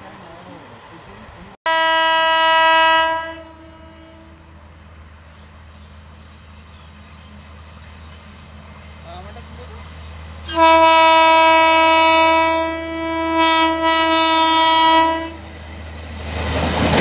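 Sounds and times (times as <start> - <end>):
train rumbling: 0.0 - 17.0
locomotive horn blast: 1.7 - 4.5, 10.5 - 15.4.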